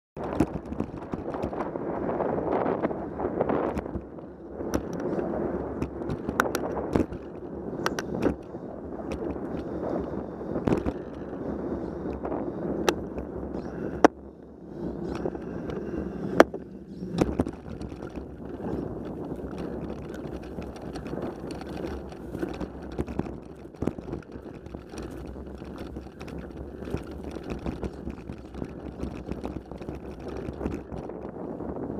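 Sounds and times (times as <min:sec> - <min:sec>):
bicycle clicks and rattles: 0:00.2 - 0:31.9
bicycle tyre noise: 0:00.2 - 0:31.9
wind on microphone: 0:00.2 - 0:31.9
camera mount jostling: 0:16.4 - 0:31.1.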